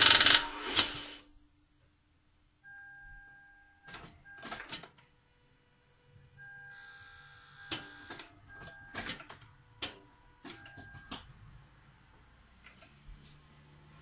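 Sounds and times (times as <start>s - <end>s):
starter clicking: 0.0s - 1.1s.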